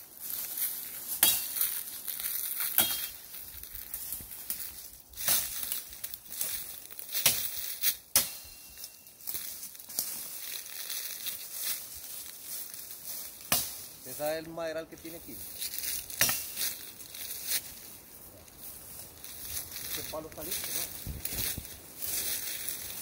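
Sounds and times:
branches rustling: 0.0 - 23.0
footsteps crunching dry leaves: 0.0 - 23.0
twigs snapping: 0.3 - 14.0, 15.4 - 17.9.

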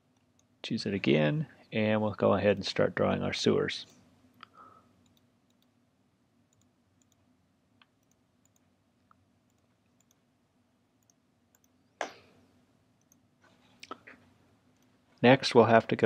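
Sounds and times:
computer mouse clicking: 5.0 - 5.7, 6.5 - 7.2, 7.8 - 8.7, 9.5 - 10.2, 11.0 - 11.8.

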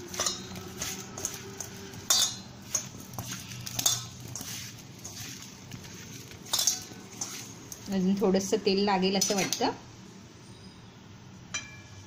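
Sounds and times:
knocks and clinks against steel bowl: 0.0 - 5.2, 6.3 - 7.9
mango pieces shuffling in bowl: 0.0 - 8.5.

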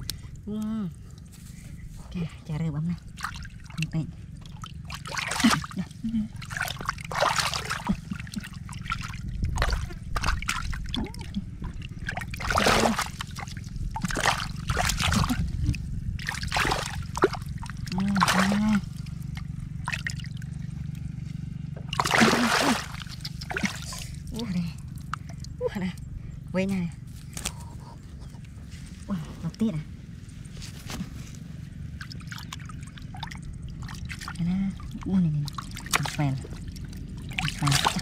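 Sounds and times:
low hum: 0.0 - 38.0
hands splashing in muddy water: 3.1 - 20.6, 21.8 - 25.5, 31.9 - 38.0.

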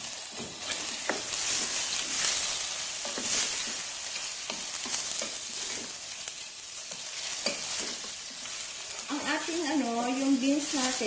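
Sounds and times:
chicken sizzling in a pot: 0.0 - 11.0
wooden spoon scraping and knocking pot: 0.3 - 3.9, 4.5 - 6.0, 6.9 - 9.1.

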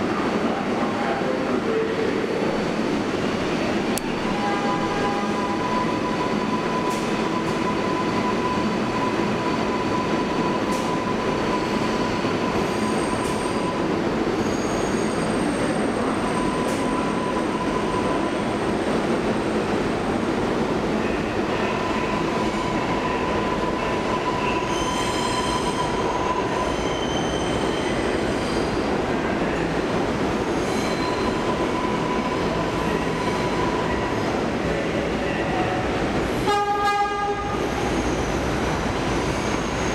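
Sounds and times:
subway train rumbling on tracks: 0.0 - 39.9
train wheels squealing: 5.2 - 18.4, 21.6 - 28.8, 30.5 - 34.1, 37.8 - 38.5, 39.1 - 39.9.

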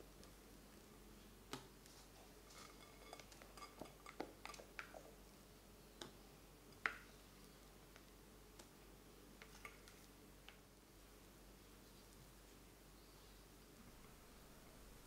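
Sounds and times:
soft squishes of batter: 0.0 - 12.8
utensils tapping a glass bowl: 2.6 - 4.7.

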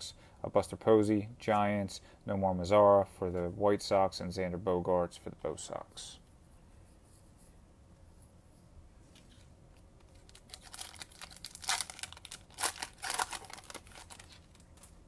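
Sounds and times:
wrapper tearing and crinkling: 10.1 - 14.9.

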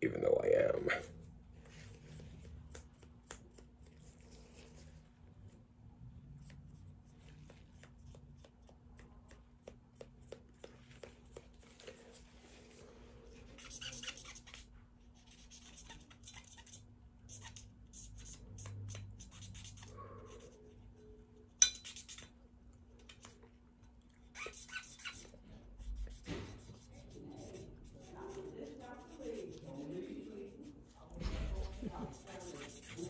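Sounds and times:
cotton swab scrubbing: 24.3 - 33.0.

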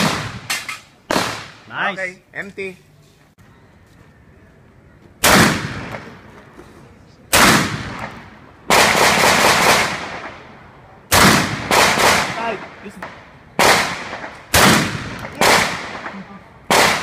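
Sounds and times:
rifle shots with echo: 0.0 - 1.7, 5.2 - 6.2, 7.3 - 10.5, 11.1 - 17.0.

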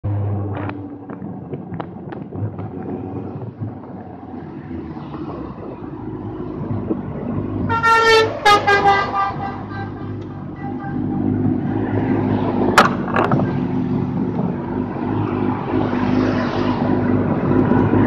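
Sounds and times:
road noise: 0.0 - 18.0
vehicle horn honking: 7.7 - 11.2.

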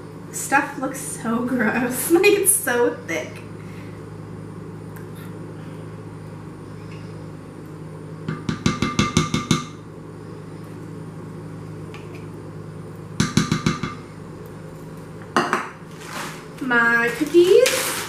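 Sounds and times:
steady low hum: 0.0 - 18.0
can tapping on glass bowl: 8.3 - 9.8, 13.2 - 14.0.

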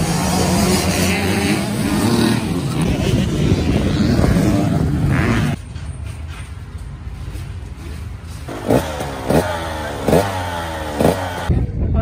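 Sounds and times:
dirt bike engine revving: 0.0 - 5.6, 8.5 - 11.5
motocross bike engines running: 0.0 - 11.6.

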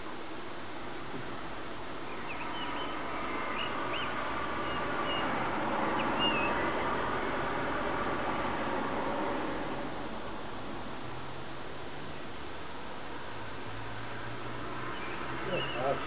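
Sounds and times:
blackbird singing: 2.0 - 6.9, 14.9 - 16.0.

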